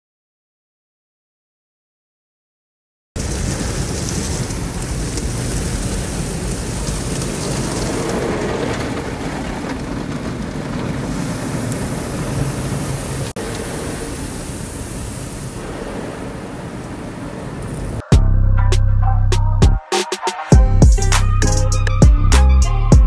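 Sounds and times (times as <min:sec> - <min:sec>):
car wash water spraying: 0:03.2 - 0:18.0.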